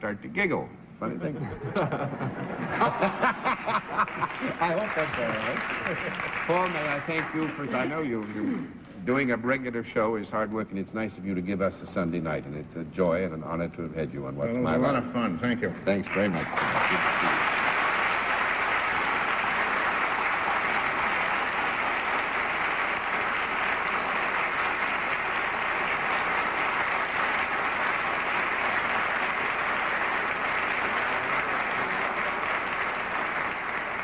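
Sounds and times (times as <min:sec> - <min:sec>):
audience applauding: 0:01.8 - 0:08.4, 0:15.7 - 0:34.0.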